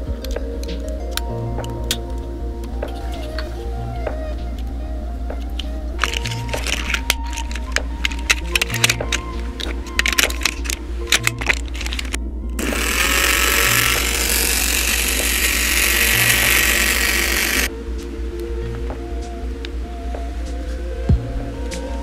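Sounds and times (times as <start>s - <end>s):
background music with steady beat: 0.0s - 22.0s
small electric motor whirring: 6.0s - 17.7s.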